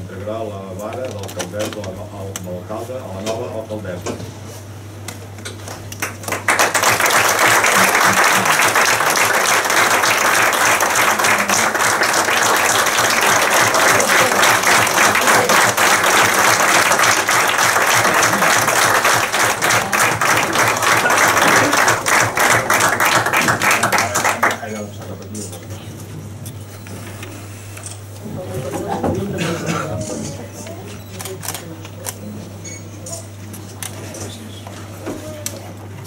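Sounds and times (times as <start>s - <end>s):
people applauding: 5.8s - 24.9s.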